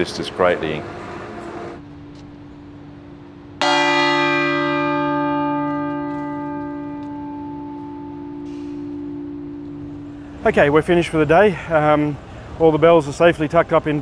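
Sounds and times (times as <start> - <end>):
low hum: 1.8 - 12.4
large church bell ringing: 3.1 - 12.2.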